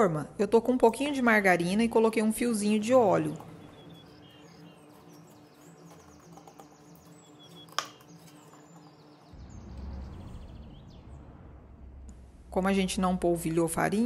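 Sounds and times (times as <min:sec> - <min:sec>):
birds chirping faintly: 0:00.6 - 0:11.8.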